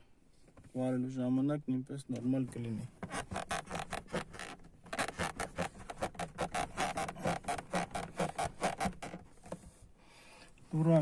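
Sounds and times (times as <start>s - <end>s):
car door creaking and rubbing: 2.5s - 9.8s.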